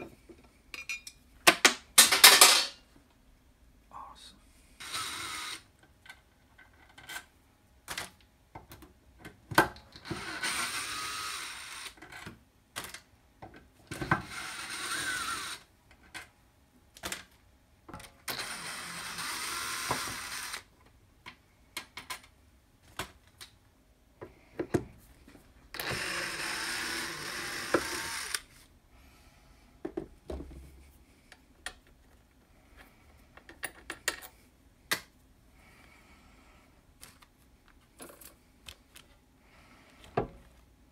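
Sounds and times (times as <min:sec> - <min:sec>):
clinks of screws and metal parts: 0:00.7 - 0:01.2
cordless drill running: 0:04.8 - 0:05.7, 0:10.0 - 0:12.0, 0:14.2 - 0:15.7, 0:18.3 - 0:20.7, 0:25.8 - 0:28.5.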